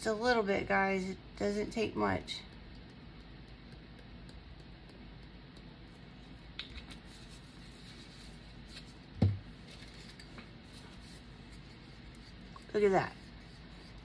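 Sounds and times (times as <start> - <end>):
dull thump on table: 9.2 - 9.4.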